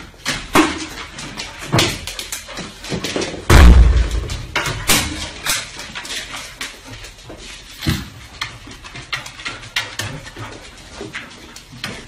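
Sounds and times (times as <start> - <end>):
heavy thud: 3.5 - 4.6.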